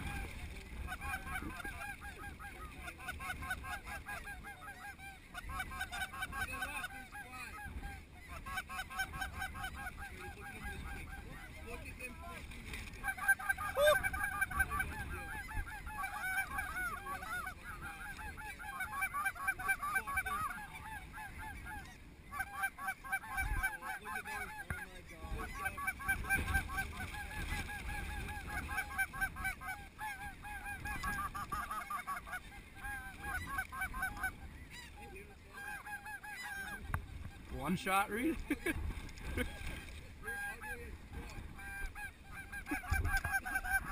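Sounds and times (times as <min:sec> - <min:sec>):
snow geese honking: 0:00.0 - 0:43.9.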